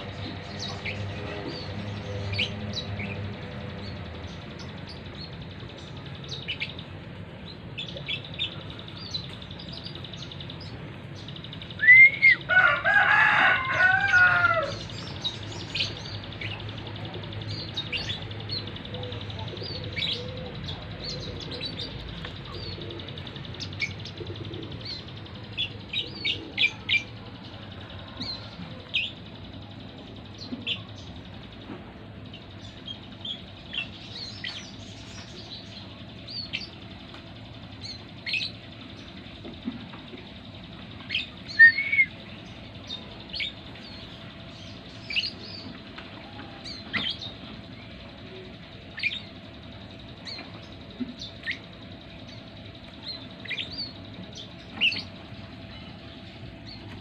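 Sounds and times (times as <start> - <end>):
rooster crowing: 12.4 - 14.9
small bird chirps: 40.9 - 45.8, 46.6 - 57.0.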